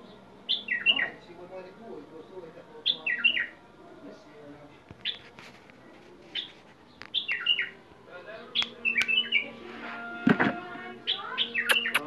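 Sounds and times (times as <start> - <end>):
bird whistled chirps: 7.2 - 7.7, 11.1 - 12.0.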